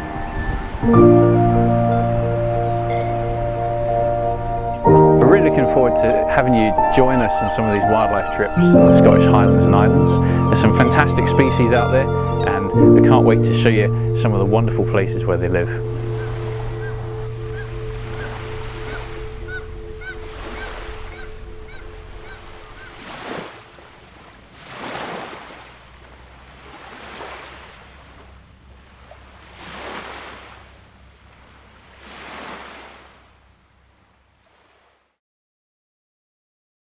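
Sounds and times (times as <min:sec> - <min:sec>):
low music chord: 0:00.0 - 0:22.8
sea waves washing onto shore: 0:15.6 - 0:35.1.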